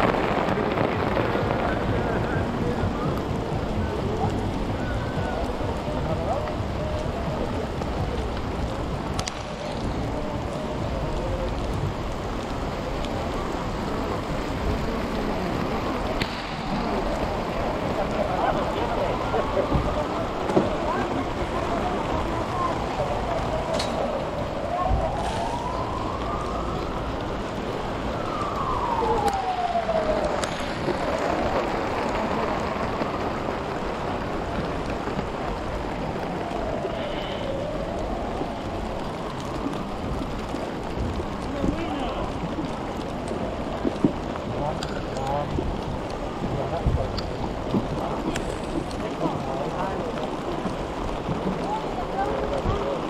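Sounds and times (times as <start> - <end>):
steady rain falling: 0.0 - 53.0
siren wailing: 16.7 - 34.9, 35.8 - 45.1.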